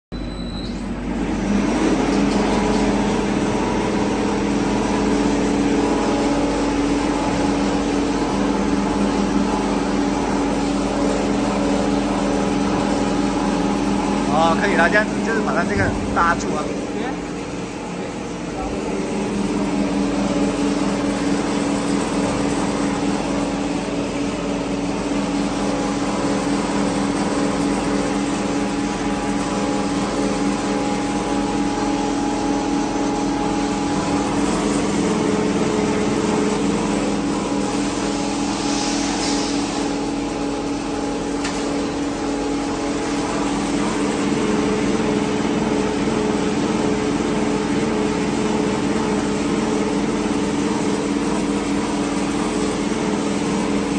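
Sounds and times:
machine hum and whine: 0:00.1 - 0:53.9.

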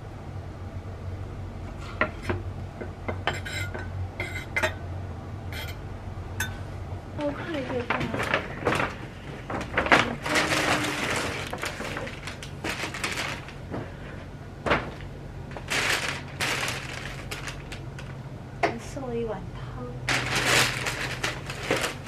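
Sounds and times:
paper and plastic bags rustling: 0:07.2 - 0:18.2, 0:20.0 - 0:22.0.

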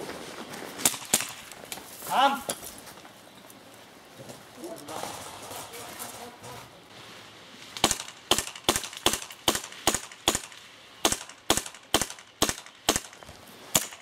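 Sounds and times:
airsoft gun shots: 0:07.8 - 0:14.0.

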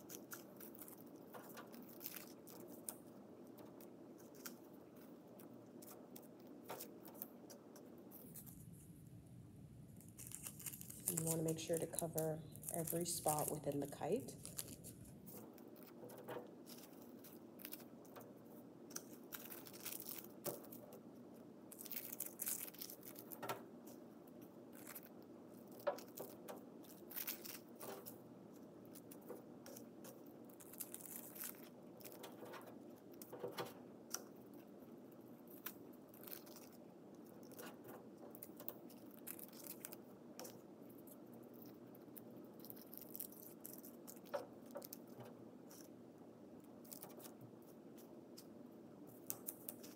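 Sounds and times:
paper crinkling: 0:00.0 - 0:08.9, 0:09.9 - 0:46.0, 0:46.6 - 0:49.9.

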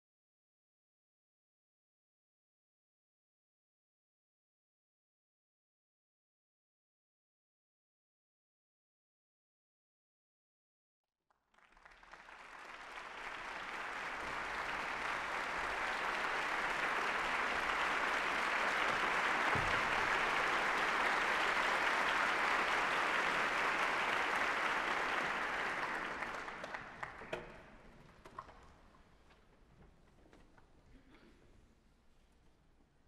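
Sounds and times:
audience applauding: 0:11.5 - 0:27.8.

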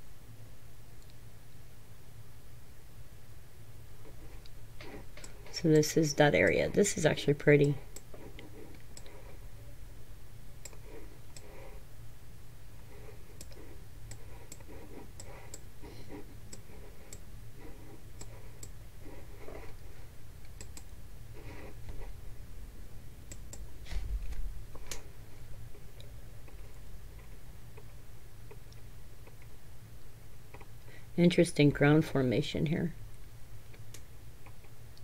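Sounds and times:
steady low hum: 0:00.0 - 0:35.0
computer mouse clicking: 0:04.4 - 0:06.7, 0:07.9 - 0:09.3, 0:10.6 - 0:11.7, 0:13.0 - 0:15.7, 0:16.5 - 0:18.8, 0:20.4 - 0:20.9.

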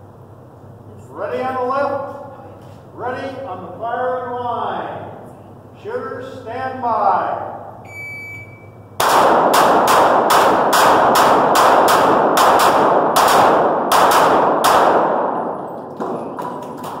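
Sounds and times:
rapid pistol shots echoing: 0:09.0 - 0:17.0.

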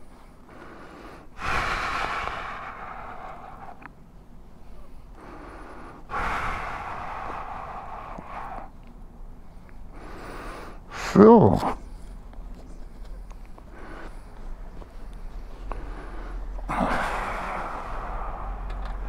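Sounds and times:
breathy exhales: 0:00.5 - 0:03.9, 0:04.7 - 0:08.8, 0:15.6 - 0:19.0.

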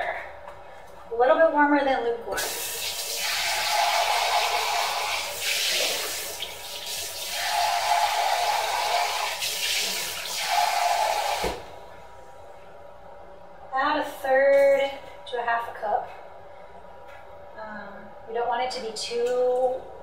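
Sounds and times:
faucet water running: 0:02.3 - 0:11.7.

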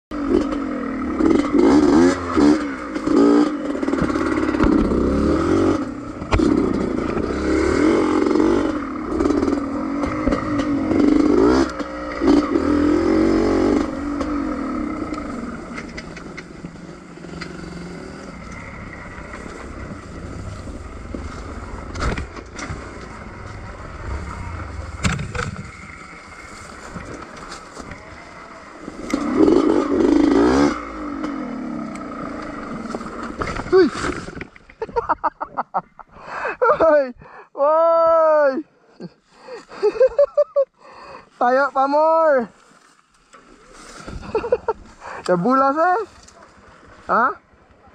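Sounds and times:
dirt bike engine revving: 0:00.1 - 0:34.6
bike knocks and rattles: 0:21.0 - 0:23.7, 0:24.8 - 0:28.0.

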